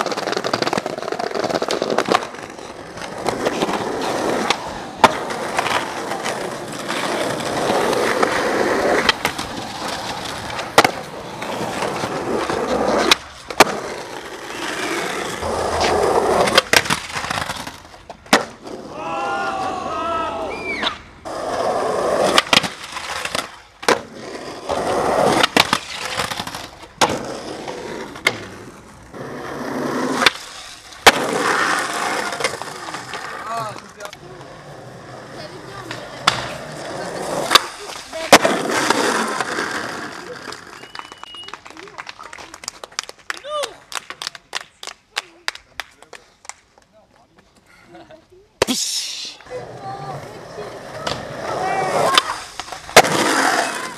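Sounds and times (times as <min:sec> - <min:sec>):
skateboard clacks popping and landing: 0:00.0 - 0:18.9, 0:22.0 - 0:35.1, 0:35.7 - 0:41.5, 0:50.8 - 0:53.9
skateboard wheels rolling on asphalt: 0:00.0 - 0:48.7, 0:49.3 - 0:53.9.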